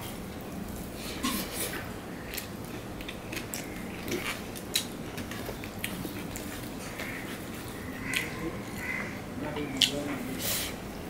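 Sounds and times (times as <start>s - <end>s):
chewing and wet mouth sounds: 2.2s - 9.0s.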